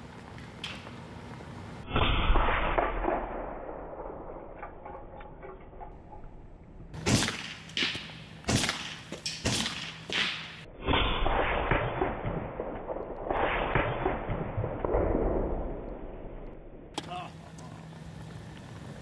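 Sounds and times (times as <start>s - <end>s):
air pistol shots hitting cans: 7.0s - 10.6s.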